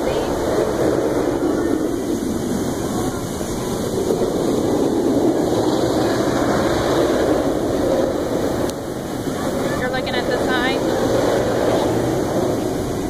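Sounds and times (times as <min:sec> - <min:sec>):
roller coaster train roaring: 0:00.0 - 0:13.0.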